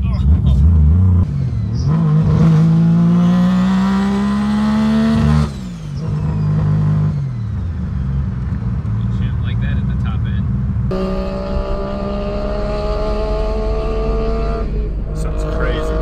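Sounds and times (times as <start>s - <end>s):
rotary engine revving under boost: 0.4s - 7.7s, 10.9s - 16.0s.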